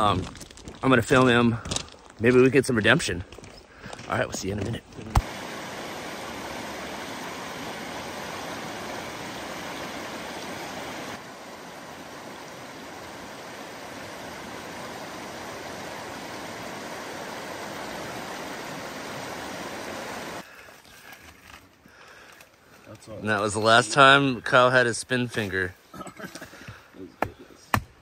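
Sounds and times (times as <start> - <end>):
river rapids rushing over rocks: 5.2 - 20.4.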